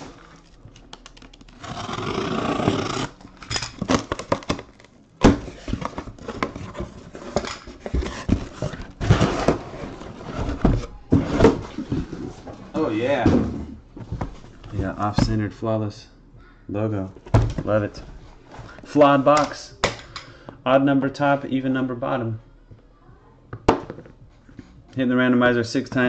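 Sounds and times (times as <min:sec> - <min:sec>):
cardboard scraping and rustling: 0:05.2 - 0:12.7
boxes sliding out: 0:05.2 - 0:13.8.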